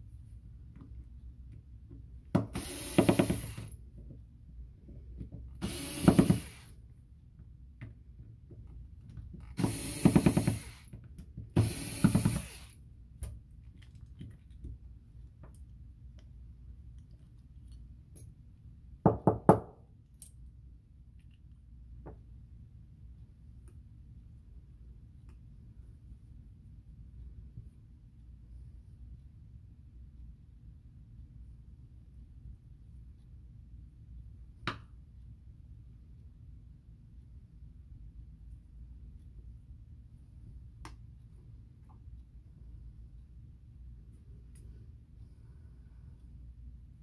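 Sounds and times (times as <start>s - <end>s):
cordless screwdriver running: 2.6s - 3.7s, 5.6s - 6.7s, 9.6s - 10.8s, 11.6s - 12.7s.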